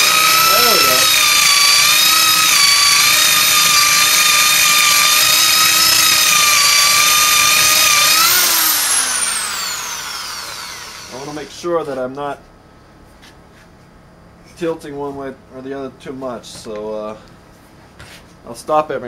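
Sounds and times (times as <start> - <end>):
electric drill boring into wood: 0.0 - 11.5
drill motor winding down: 0.0 - 11.8.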